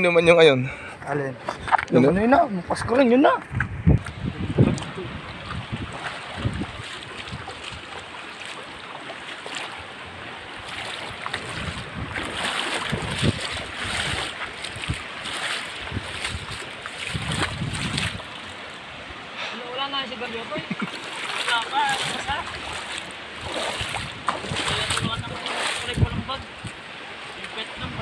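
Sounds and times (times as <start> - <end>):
wind buffeting microphone: 1.4 - 8.2, 10.3 - 18.5, 21.3 - 26.9, 27.8 - 28.0
river running over rocks: 4.0 - 28.0.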